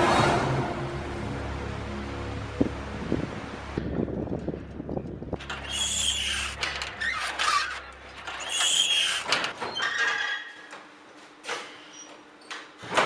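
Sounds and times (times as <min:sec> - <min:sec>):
low steady drone: 0:00.0 - 0:05.5
water pump creaking and squealing: 0:05.4 - 0:10.7.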